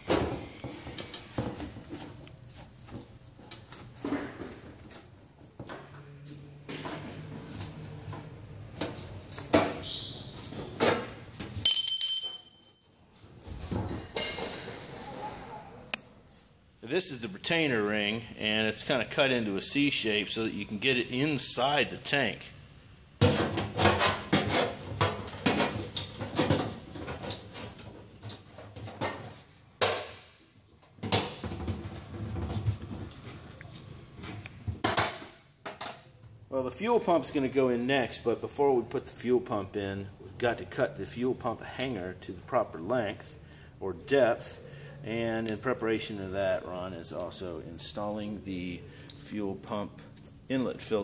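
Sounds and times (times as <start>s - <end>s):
ringing metal clink: 11.7s - 12.9s
knocks and scrapes on metal tank: 23.2s - 29.4s.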